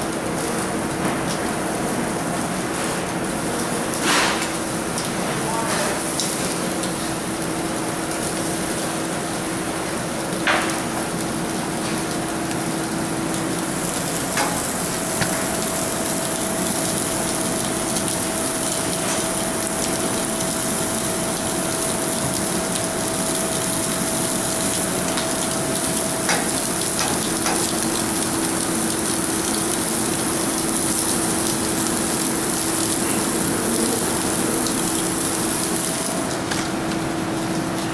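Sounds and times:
food sizzling on a grill: 0:00.0 - 0:37.9.

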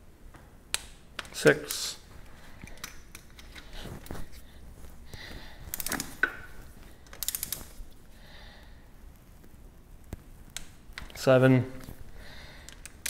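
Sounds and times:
torque wrench ratchet clicking: 0:07.1 - 0:07.6.

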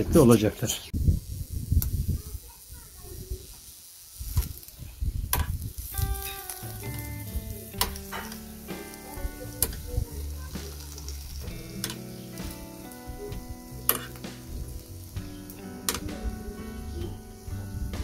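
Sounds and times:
meat sizzling on a grill: 0:00.0 - 0:18.0
background music with held notes: 0:06.0 - 0:18.0
metal skewers clicking: 0:07.7 - 0:08.5, 0:10.6 - 0:12.5, 0:13.8 - 0:14.2.

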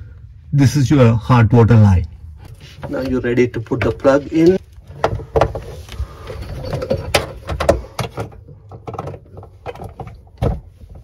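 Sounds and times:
rustling: 0:02.4 - 0:08.4.

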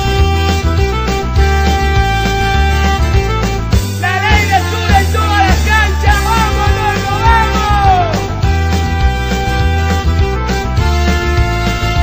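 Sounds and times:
band playing chant song: 0:04.0 - 0:08.4.

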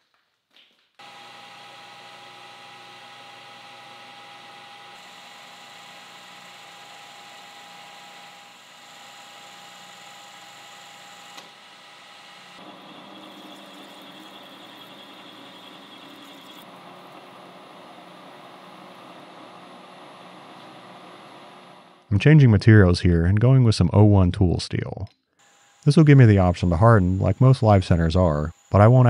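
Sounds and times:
lathe humming and whining: 0:01.0 - 0:22.1, 0:25.4 - 0:29.0.

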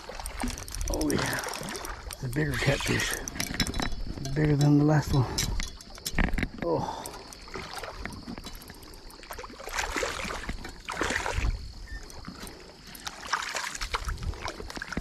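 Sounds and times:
fish splashing at water surface: 0:07.0 - 0:15.0.

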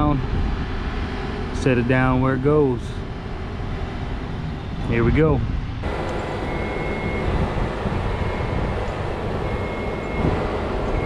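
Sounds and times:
heavy machinery rumbling: 0:00.0 - 0:11.0
warning alarm beeps: 0:05.8 - 0:11.0.

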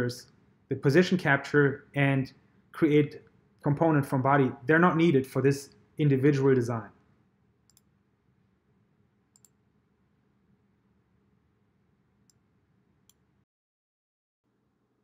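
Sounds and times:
computer mouse clicks: 0:07.7 - 0:07.9, 0:09.3 - 0:09.6.

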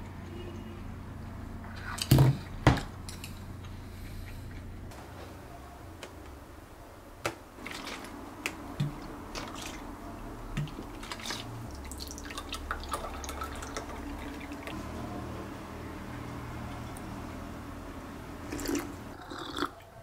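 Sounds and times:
liquid pouring and splashing: 0:07.6 - 0:09.9, 0:10.5 - 0:14.8.

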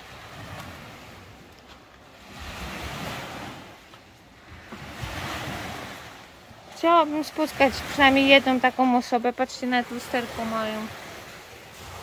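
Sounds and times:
waves washing on sandy beach: 0:00.0 - 0:12.0.

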